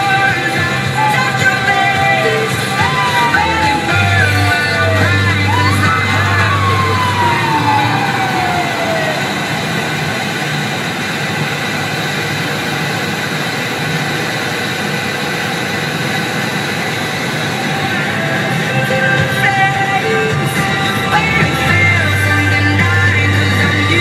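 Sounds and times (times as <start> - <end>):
ambulance siren wail: 0.0 - 11.8
engine and tyre noise: 0.0 - 24.0.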